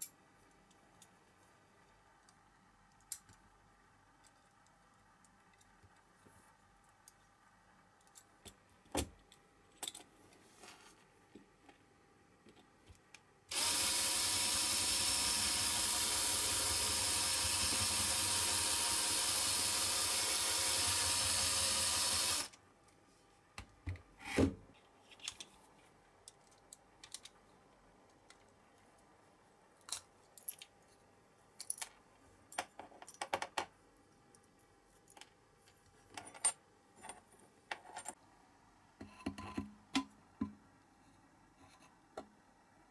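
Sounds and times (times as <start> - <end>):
small electric drill running: 13.5 - 22.5.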